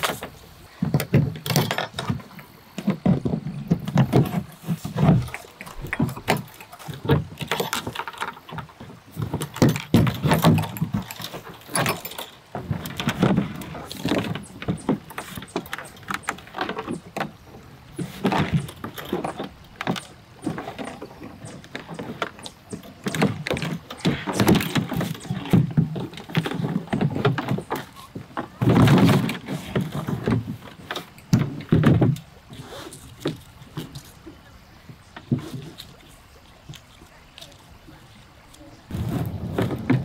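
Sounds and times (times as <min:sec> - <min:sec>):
fasteners clicking and rattling: 0:00.0 - 0:17.4
plastic sheet flexing and rubbing: 0:38.6 - 0:40.0.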